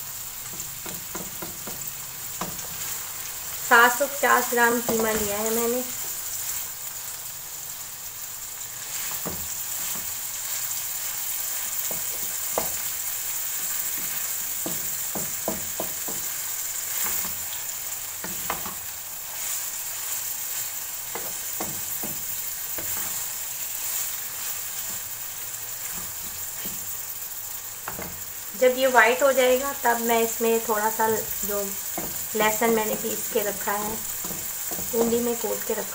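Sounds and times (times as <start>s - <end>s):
meat sizzling in oil: 0.0s - 35.9s
spatula scraping pan: 18.2s - 27.0s, 31.2s - 35.9s.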